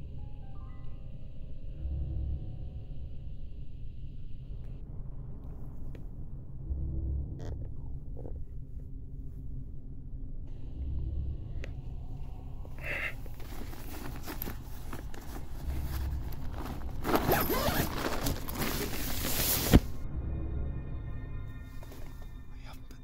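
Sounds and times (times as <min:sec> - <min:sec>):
fabric rustling: 0:12.8 - 0:20.0
tent zip being pulled: 0:13.3 - 0:19.9.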